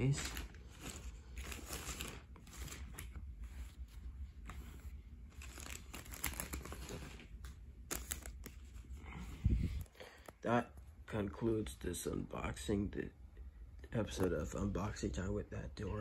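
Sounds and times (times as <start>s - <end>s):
hand rustling fabric: 0.0s - 10.3s.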